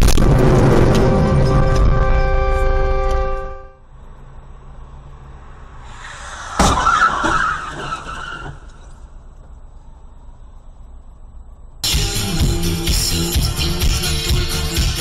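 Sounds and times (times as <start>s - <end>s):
car tyres skidding: 4.5s - 9.4s
car crash bang: 5.8s - 9.1s.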